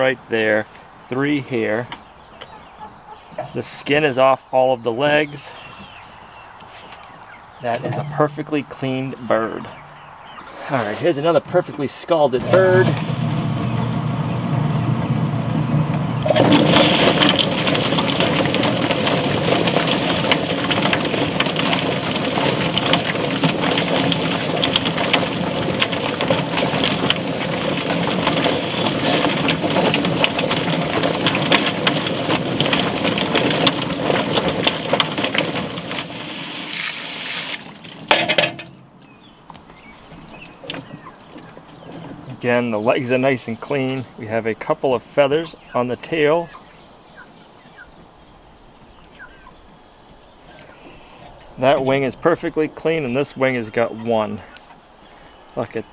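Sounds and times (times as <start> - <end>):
plucker motor humming: 12.4 - 18.9
bird tumbling in drum: 12.4 - 36.9
hose spraying water: 16.2 - 38.0.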